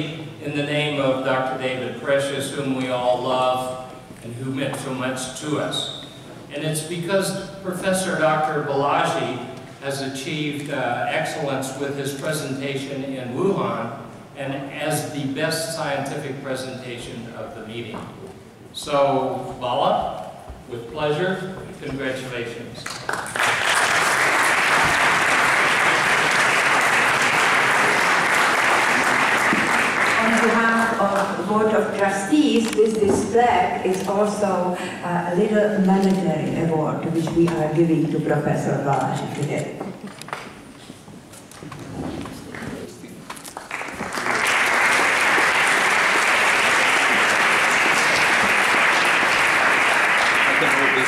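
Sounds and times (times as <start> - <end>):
audience applauding: 22.8 - 31.4, 43.4 - 51.0.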